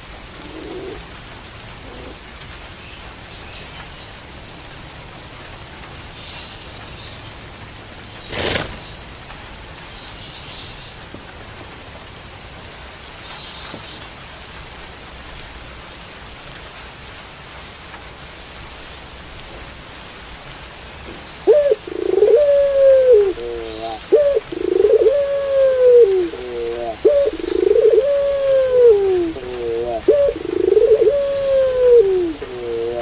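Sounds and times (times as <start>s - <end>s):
steady rain hiss: 0.0s - 33.0s
dove cooing: 0.3s - 1.2s, 1.8s - 2.2s, 21.4s - 33.0s.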